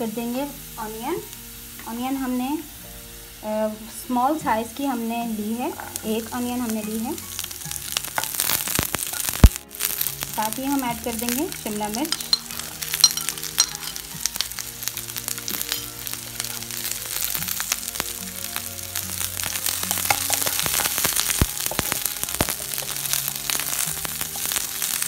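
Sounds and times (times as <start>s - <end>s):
soft background music: 0.0s - 25.0s
vegetables sizzling in oil: 0.0s - 25.0s
wooden spatula stirring: 7.2s - 24.9s.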